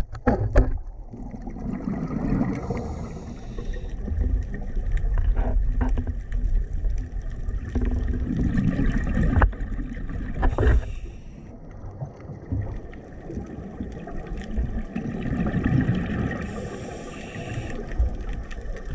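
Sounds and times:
underwater exhaled bubbles: 0:00.2 - 0:18.9.

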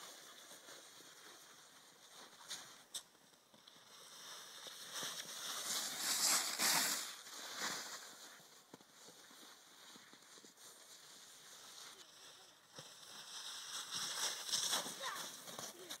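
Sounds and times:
snowboard scraping over snow: 0:04.0 - 0:12.1, 0:12.7 - 0:16.0.

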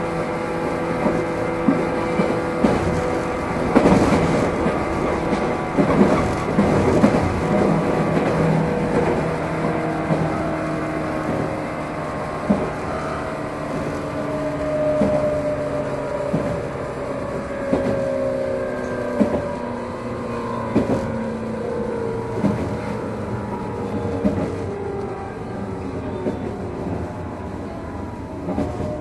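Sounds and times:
wheels clacking over rail joints: 0:00.0 - 0:27.4
train motor hum and whine: 0:00.0 - 0:29.0.

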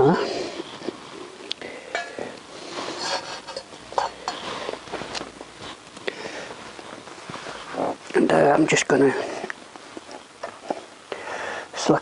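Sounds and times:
handling noise: 0:00.6 - 0:08.2
metal bowl clinking: 0:01.9 - 0:04.5.

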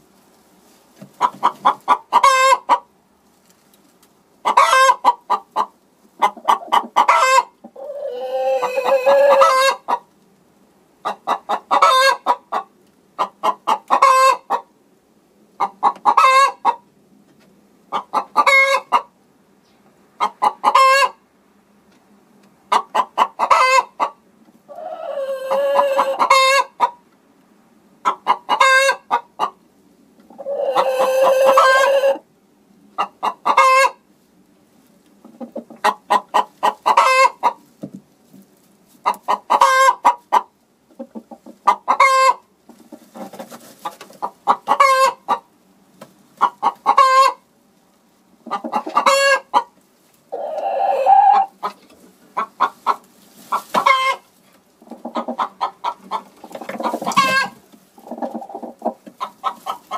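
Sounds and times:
hen cackling: 0:01.2 - 0:02.9, 0:04.4 - 0:10.1, 0:11.0 - 0:14.7, 0:15.6 - 0:16.8, 0:17.9 - 0:19.1, 0:20.2 - 0:21.2, 0:22.7 - 0:27.0, 0:28.0 - 0:29.6, 0:30.3 - 0:32.2, 0:33.0 - 0:34.0, 0:35.2 - 0:37.6, 0:39.0 - 0:42.5, 0:43.2 - 0:45.5, 0:46.4 - 0:47.4, 0:48.4 - 0:59.9.

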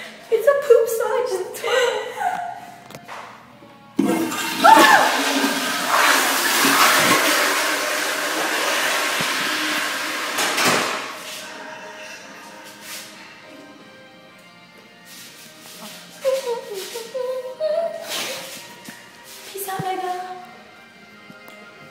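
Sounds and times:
toilet flushing: 0:04.0 - 0:13.1.

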